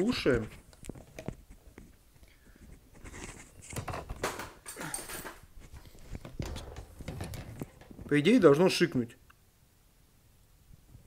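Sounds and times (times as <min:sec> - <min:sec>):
microphone handling rustles and clicks: 0:00.1 - 0:08.4.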